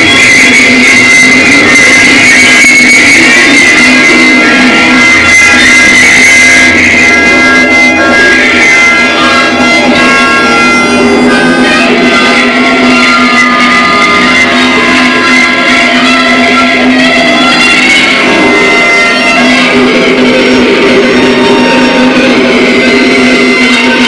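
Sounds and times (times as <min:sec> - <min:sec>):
guitar: 0:00.0 - 0:24.0
loud instrumental music: 0:00.0 - 0:24.0.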